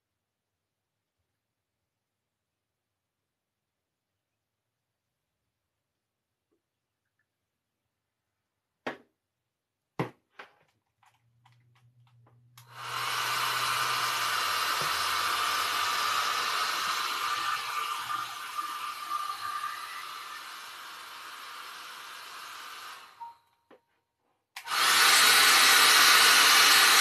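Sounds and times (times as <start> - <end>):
hair dryer blowing: 12.6 - 23.3, 24.6 - 27.0.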